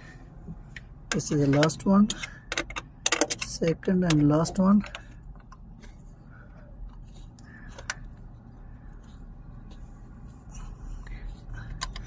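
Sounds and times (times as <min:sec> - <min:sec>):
allen key clicking and scraping: 0:00.7 - 0:05.6.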